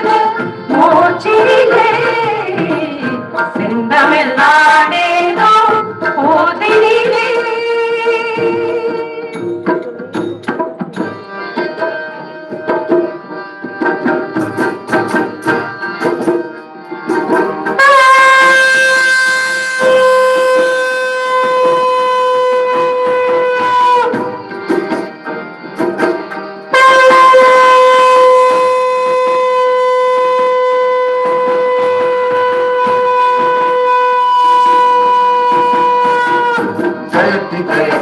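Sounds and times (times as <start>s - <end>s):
tabla and drums: 0.0s - 38.0s
wind instrument holding a note: 17.2s - 24.5s, 26.7s - 37.6s
person singing: 37.1s - 38.0s.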